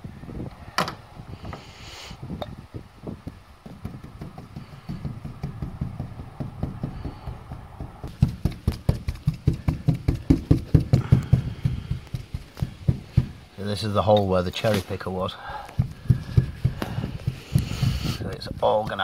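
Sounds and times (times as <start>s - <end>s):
paintbrush tapping: 3.2s - 13.5s, 15.7s - 17.9s.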